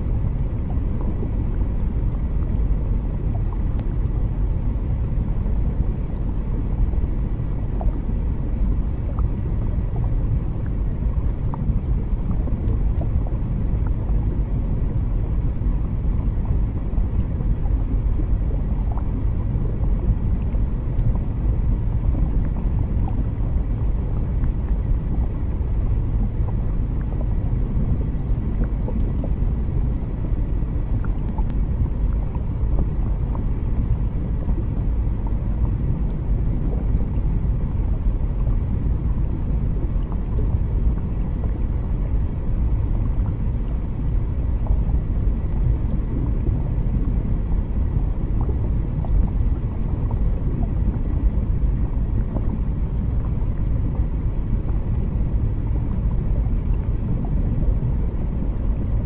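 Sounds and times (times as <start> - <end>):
deep underwater rumble: 0.0 - 59.0.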